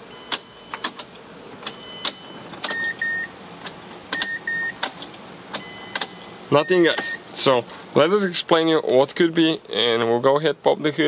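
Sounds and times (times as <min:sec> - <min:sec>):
dashboard warning chimes: 0:00.0 - 0:00.9, 0:01.6 - 0:03.4, 0:04.1 - 0:04.9, 0:05.5 - 0:07.3
ignition clicks: 0:00.1 - 0:07.2.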